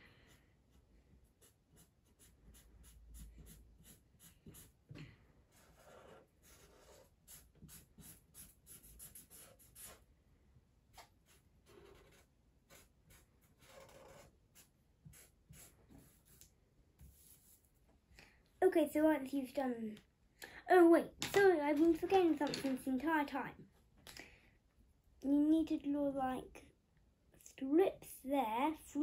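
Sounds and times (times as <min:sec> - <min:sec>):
pen scratching on paper: 0:05.5 - 0:10.0, 0:11.2 - 0:16.4.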